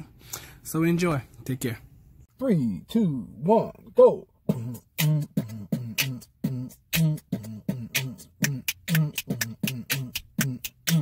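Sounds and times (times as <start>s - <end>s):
beatboxing hummed vocal notes: 4.4s - 11.0s
mouth-percussion clicks: 8.0s - 11.0s.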